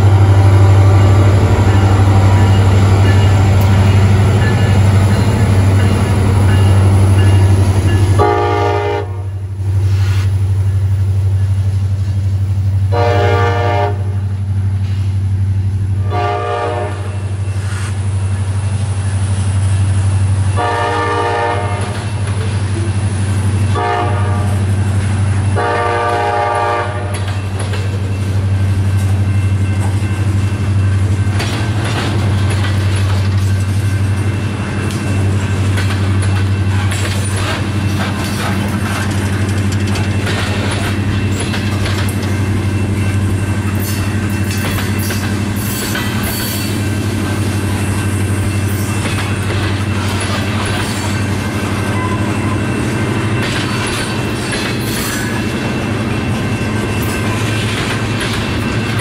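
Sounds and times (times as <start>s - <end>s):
low train rumble: 0.0s - 59.0s
locomotive horn blasts: 7.4s - 9.4s, 12.9s - 14.2s, 16.0s - 17.2s, 20.6s - 22.0s, 23.7s - 24.7s, 25.5s - 27.3s
wheels clacking over rail joints: 24.9s - 59.0s.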